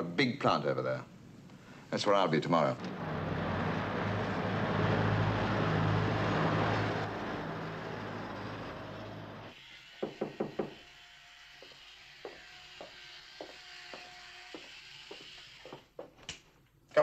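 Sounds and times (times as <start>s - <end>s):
street traffic: 2.7s - 9.6s
knocks on a door: 10.0s - 10.8s.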